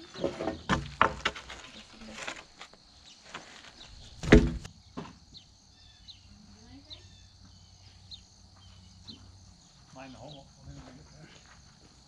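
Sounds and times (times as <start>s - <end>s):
wooden knocks and thumps: 0.0s - 1.7s, 4.1s - 5.3s.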